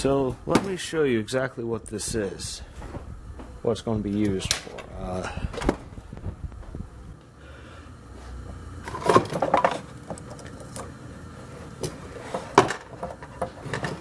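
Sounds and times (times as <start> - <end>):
parts knocking and rattling: 8.9 - 10.5, 11.8 - 14.0.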